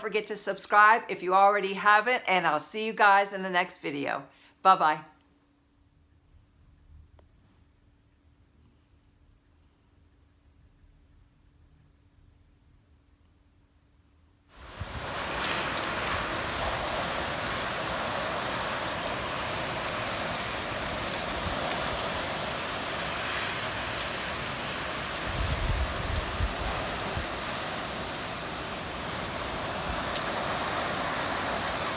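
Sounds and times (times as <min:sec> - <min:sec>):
heavy rain pouring: 0:14.5 - 0:31.9.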